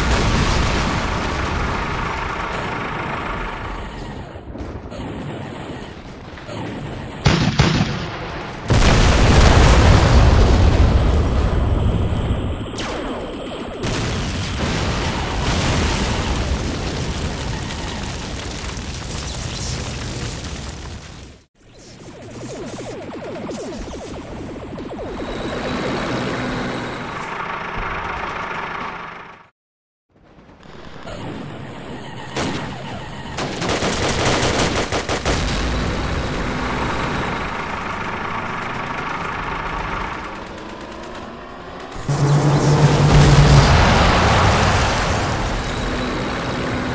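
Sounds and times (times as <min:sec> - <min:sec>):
explosion with noisy tail: 0:00.0 - 0:02.9, 0:04.5 - 0:21.4, 0:42.0 - 0:46.9
rifle and machine-gun fire: 0:00.0 - 0:04.1, 0:05.1 - 0:11.0, 0:30.2 - 0:46.9
vehicle engine running: 0:01.1 - 0:04.3, 0:25.2 - 0:29.5, 0:35.8 - 0:46.9.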